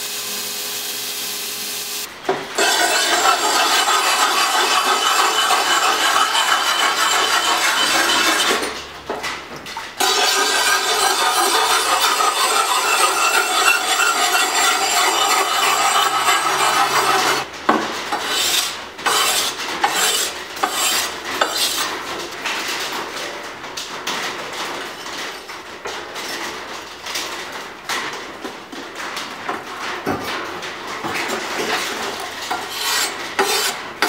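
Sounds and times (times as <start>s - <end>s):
abrasive block rasping on blade: 2.6s - 8.7s, 10.0s - 17.4s, 18.2s - 21.8s, 32.6s - 33.8s.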